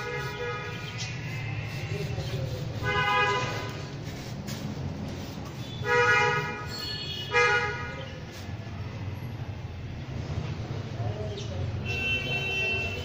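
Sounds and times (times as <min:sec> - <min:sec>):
vehicle horns honking: 0:00.0 - 0:02.2, 0:02.8 - 0:03.8, 0:05.6 - 0:08.2, 0:11.8 - 0:13.0
traffic rumble: 0:00.0 - 0:13.0.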